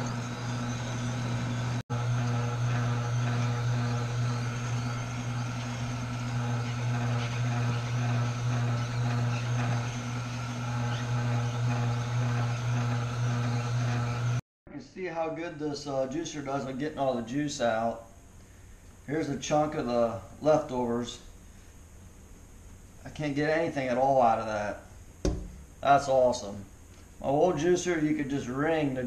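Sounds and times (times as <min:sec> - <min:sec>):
juicer humming: 0:00.0 - 0:14.4.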